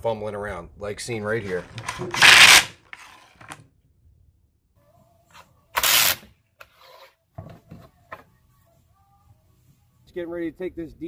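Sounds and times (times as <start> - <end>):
cartridges scraping on plywood: 1.4 - 3.6, 6.6 - 7.2.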